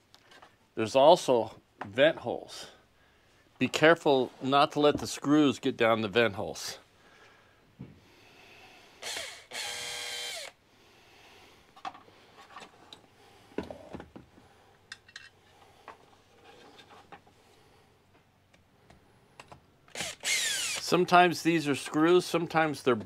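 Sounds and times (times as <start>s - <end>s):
cordless drill spinning: 9.0s - 10.6s, 19.9s - 21.0s
light clicks and scrapes: 15.0s - 17.4s.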